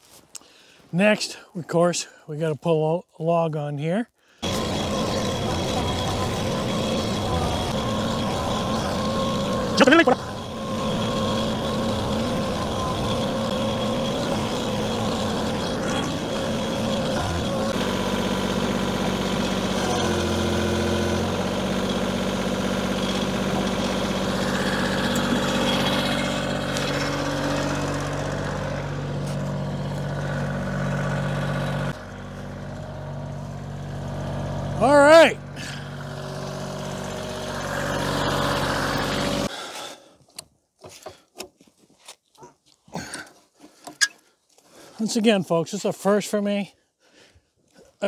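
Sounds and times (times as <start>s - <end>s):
sawmill engine running: 4.4s - 39.5s
tractor diesel engine running: 4.4s - 39.5s.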